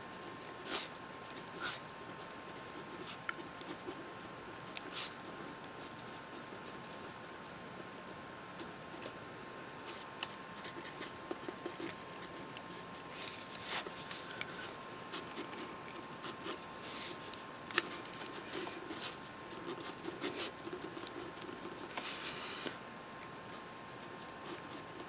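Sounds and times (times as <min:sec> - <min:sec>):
pen scratching on paper: 0:00.6 - 0:07.0, 0:09.8 - 0:22.4, 0:24.0 - 0:25.0.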